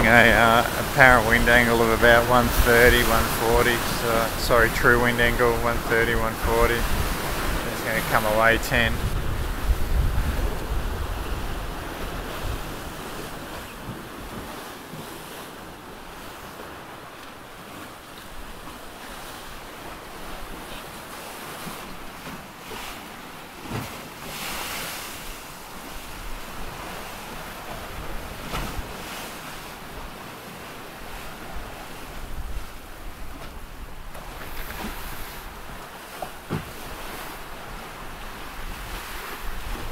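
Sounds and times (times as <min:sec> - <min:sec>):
ocean waves rushing: 0:00.0 - 0:39.9
wind buffeting microphone: 0:05.3 - 0:13.5.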